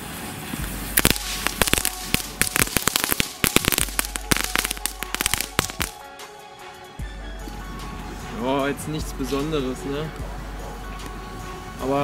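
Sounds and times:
crackling fireworks popping: 0.0s - 6.0s.

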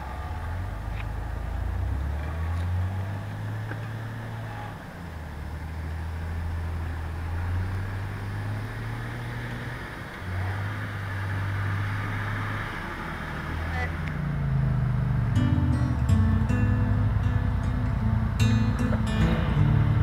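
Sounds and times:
engine running under load: 0.0s - 20.0s.

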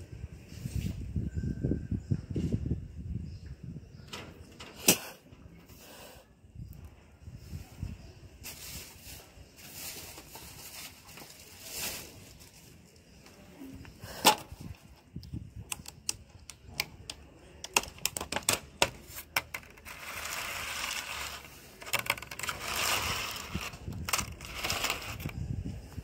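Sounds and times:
plastic container crackling: 17.6s - 25.4s.

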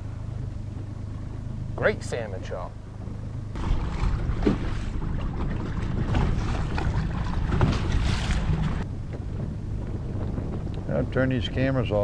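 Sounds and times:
wind buffeting microphone: 2.9s - 12.0s
waves slapping against boat: 3.5s - 12.0s.

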